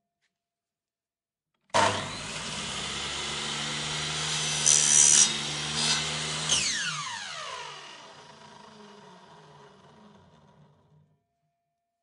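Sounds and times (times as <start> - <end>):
buzz saw whirring: 1.8 - 11.0.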